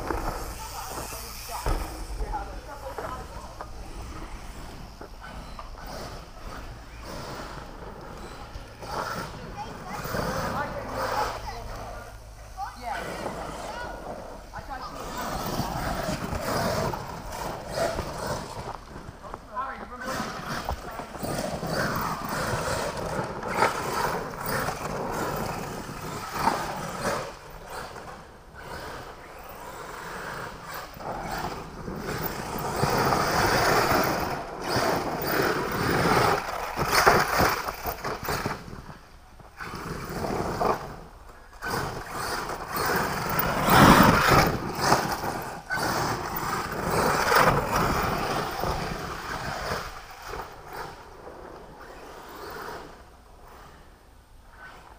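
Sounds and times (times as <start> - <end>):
toy truck motor: 0.0 - 19.1, 20.0 - 53.0.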